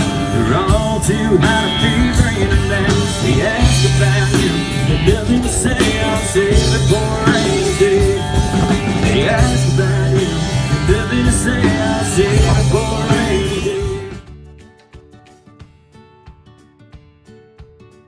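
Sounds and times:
person singing: 0.0 - 14.3
bass notes: 0.0 - 14.6
drums: 0.0 - 18.0
guitar: 0.0 - 18.0.

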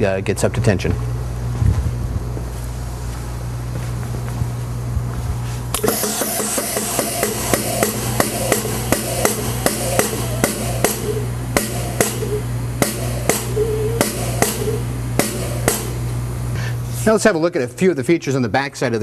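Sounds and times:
low steady hum: 0.0 - 18.7
music with steady drum beat: 5.8 - 16.0.

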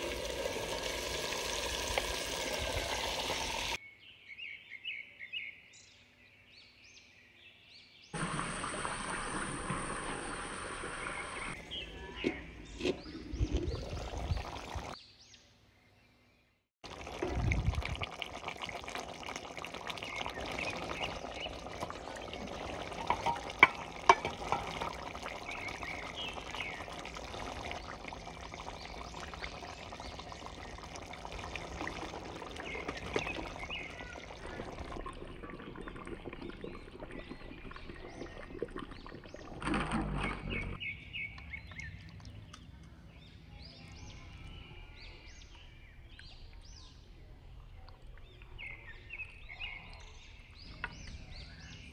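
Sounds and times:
birds chirping: 8.2 - 16.2, 19.2 - 51.9
curry stirred in a clay pot: 17.0 - 39.4.

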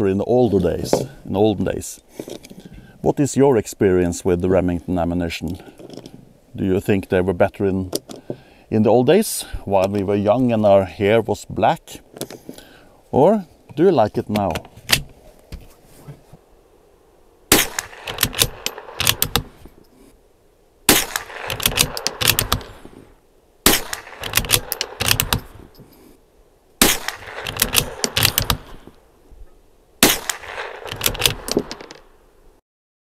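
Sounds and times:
rifle shots: 17.5 - 19.6, 20.9 - 22.9, 23.6 - 25.6, 26.8 - 28.8, 30.0 - 32.0.

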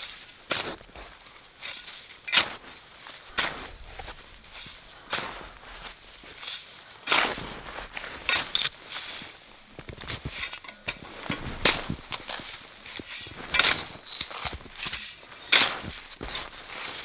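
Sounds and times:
snow shovel crunching snow: 0.0 - 17.0.

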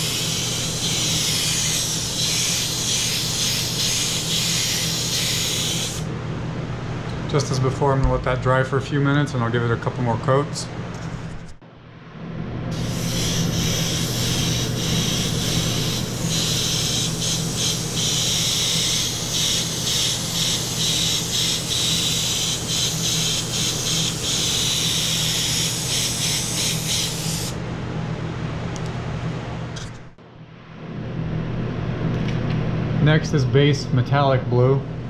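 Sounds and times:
airbrush air hiss: 0.0 - 6.1, 12.8 - 27.6
steady low hum: 0.0 - 35.0.

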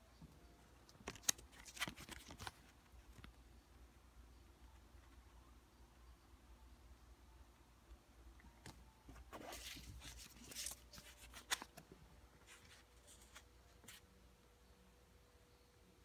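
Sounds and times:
banknotes rustling: 1.0 - 3.4, 9.2 - 11.8.

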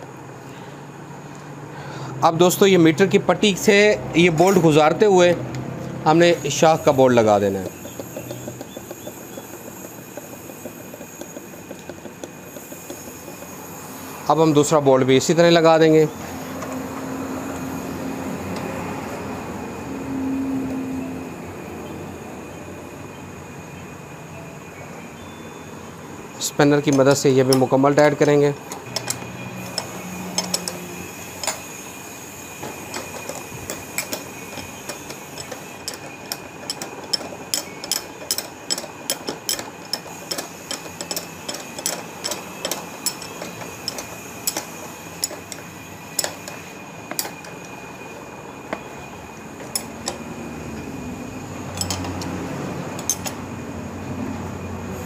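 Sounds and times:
spanner clicking on bolts: 3.6 - 19.2, 26.4 - 53.6.

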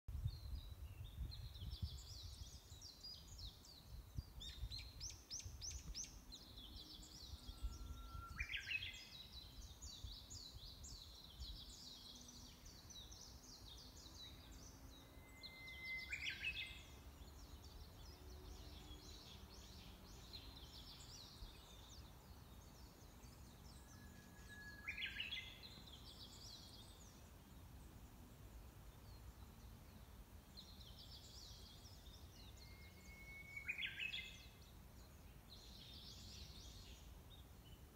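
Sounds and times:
songbirds twittering: 0.1 - 37.9
bird whistle with rising flourish: 7.4 - 8.9, 15.0 - 16.6, 32.6 - 34.1.

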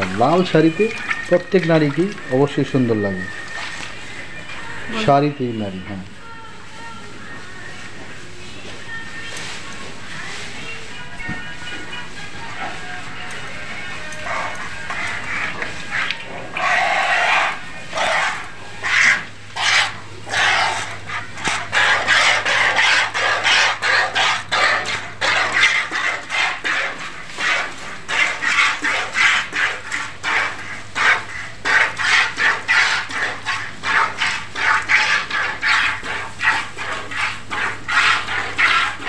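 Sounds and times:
milk squirting into plastic bucket: 0.0 - 4.0.

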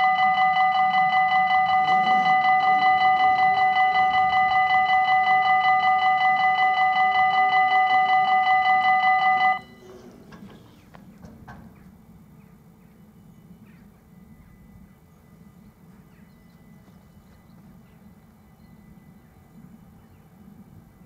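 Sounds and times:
level crossing warning bell: 0.0 - 10.1, 14.0 - 20.0
faint hum of barrier motors: 0.0 - 21.0.

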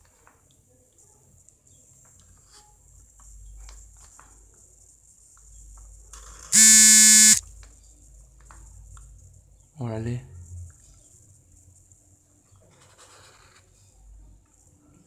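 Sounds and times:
loud steady buzzer tone: 6.5 - 7.4.

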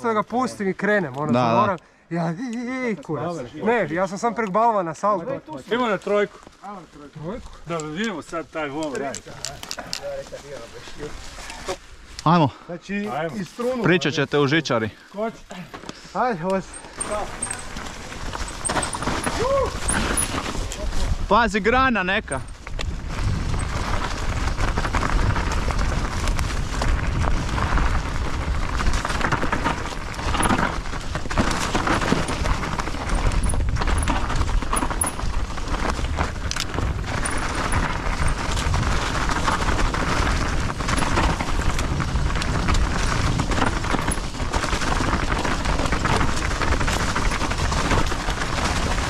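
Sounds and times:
bike tyres on dirt: 2.7 - 49.0
bike knocks and rattles: 16.6 - 20.9, 22.4 - 49.0
wind rush on microphone: 17.2 - 49.0.

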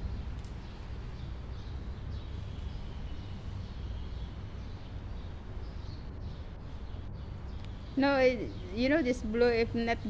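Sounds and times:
steady low rumble: 0.0 - 5.3.

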